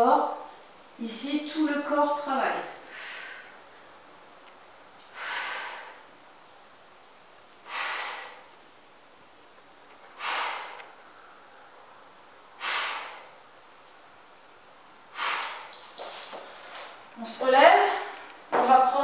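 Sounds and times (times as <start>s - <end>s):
woman exhaling forcefully: 2.9s - 3.6s, 5.1s - 6.1s, 7.6s - 8.5s, 10.2s - 11.4s, 12.6s - 13.4s, 15.1s - 15.6s.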